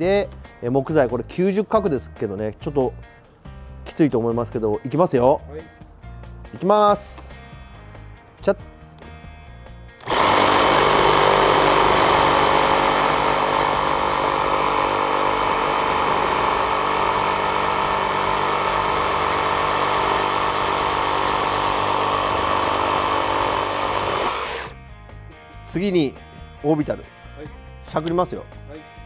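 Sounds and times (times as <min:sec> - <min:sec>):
reciprocating saw cutting timber: 0:10.0 - 0:24.8.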